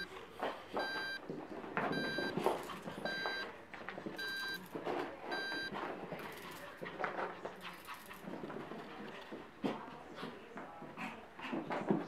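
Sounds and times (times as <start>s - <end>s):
short high beeps: 0.8s - 1.2s, 1.9s - 2.3s, 3.1s - 3.4s, 5.3s - 5.7s.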